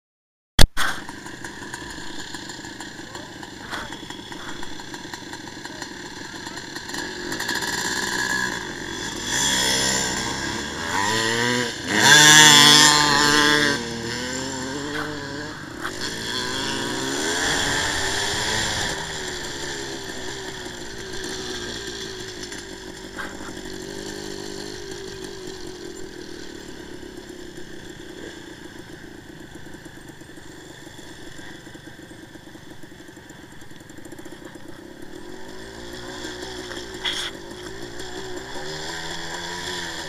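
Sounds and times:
sharp knock: 0.6 - 1.1
two-stroke motorcycle engine: 0.6 - 40.0.

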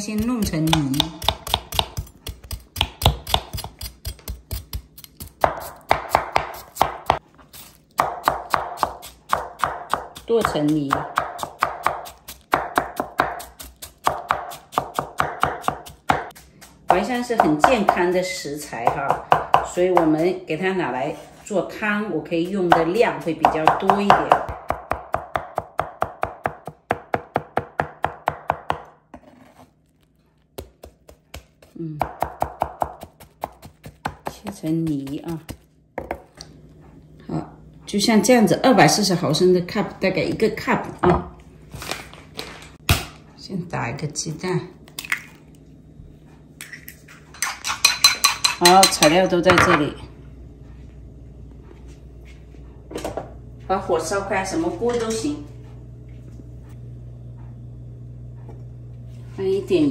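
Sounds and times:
knife chopping on wooden board: 0.0 - 7.2, 8.0 - 18.1, 22.4 - 29.5, 30.6 - 36.3
knife strikes on wooden board: 0.2 - 7.2.

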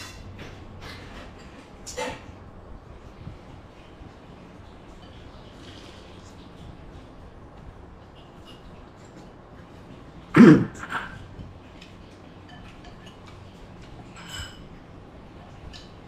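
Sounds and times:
man coughing: 10.4 - 11.2
chopsticks and spoon clinking bowl: 11.4 - 16.0.

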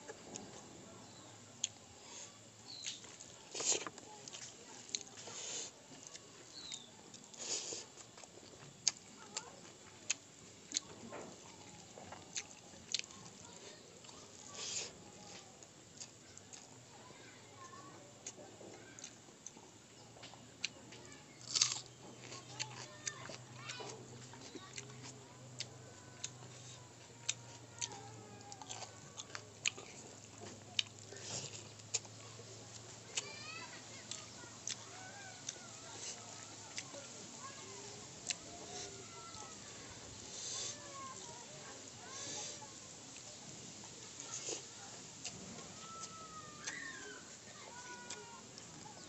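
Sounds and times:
fingers squishing rice: 0.4 - 16.7, 21.4 - 49.0
person chewing with lip smacks: 2.7 - 13.4, 21.4 - 33.3, 34.0 - 37.6.

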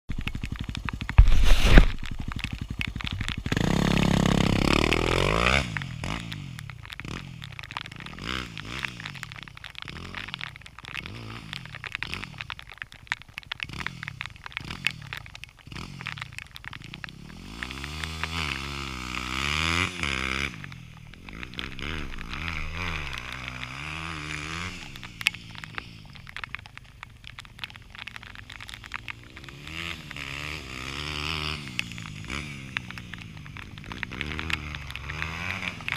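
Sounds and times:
dirt bike engine revving: 3.5 - 6.3, 17.4 - 25.2, 29.4 - 32.6.

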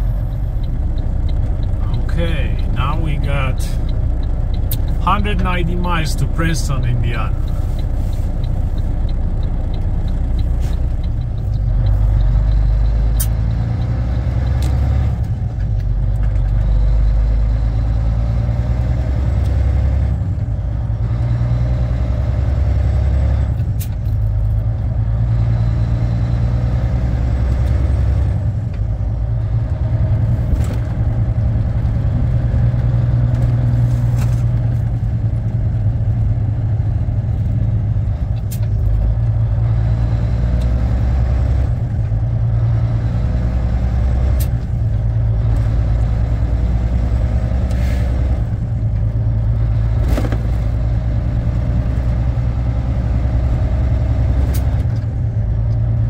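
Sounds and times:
truck diesel engine accelerating: 0.0 - 56.0.

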